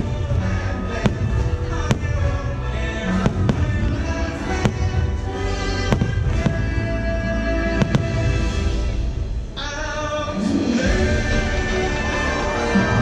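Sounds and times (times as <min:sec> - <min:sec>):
fireworks bangs: 0:00.0 - 0:09.9
soundtrack music: 0:00.0 - 0:13.0.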